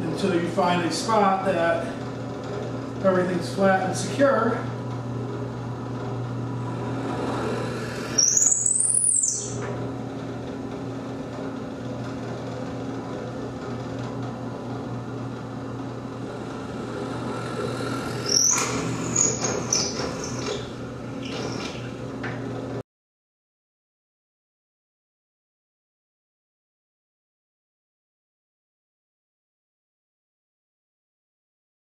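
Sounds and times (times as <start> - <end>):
drill press motor humming: 0.0 - 22.8
drill bit boring into wood: 6.0 - 10.3, 16.1 - 21.9.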